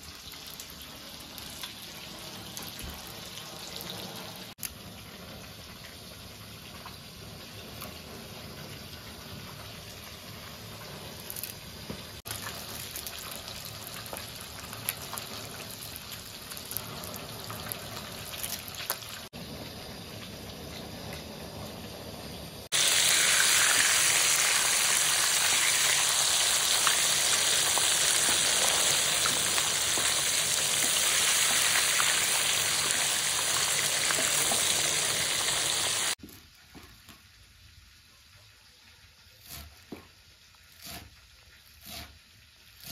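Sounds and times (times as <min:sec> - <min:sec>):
loud steady hiss: 0:19.4 - 0:36.2.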